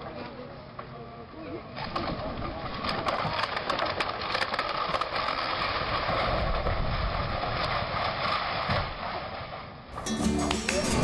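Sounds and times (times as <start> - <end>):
concrete blocks cracking and crunching: 2.9 - 6.0.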